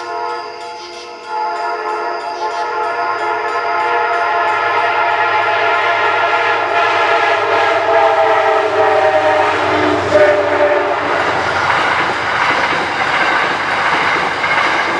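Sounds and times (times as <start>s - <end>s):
train horn blast: 0.0s - 11.8s
low train rumble: 0.0s - 14.9s.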